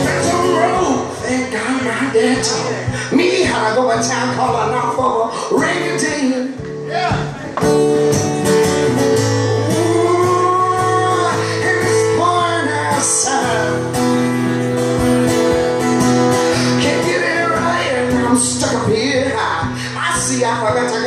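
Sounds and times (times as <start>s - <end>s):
man singing long notes: 0.0s - 3.0s, 9.4s - 13.9s
acoustic guitar strumming: 0.0s - 21.0s.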